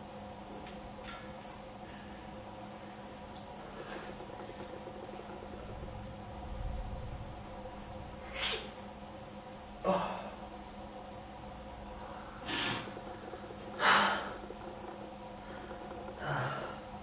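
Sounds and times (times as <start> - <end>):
high-pitched whine: 0.0 - 17.0
low hum: 0.0 - 17.0
person sniffing: 8.3 - 8.8.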